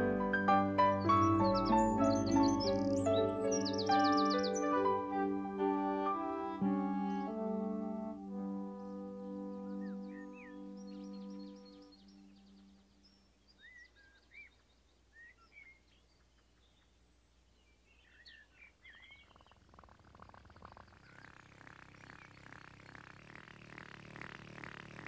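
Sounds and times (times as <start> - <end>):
birds chirping and whistling: 0.0 - 7.6, 8.6 - 16.9, 17.9 - 23.4
rapid ticking rattle: 19.3 - 25.0.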